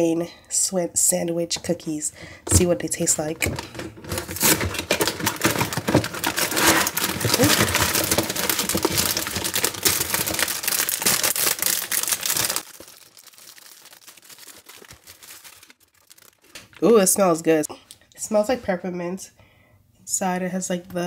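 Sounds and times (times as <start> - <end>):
packaging crinkling and crackling: 3.4 - 17.2.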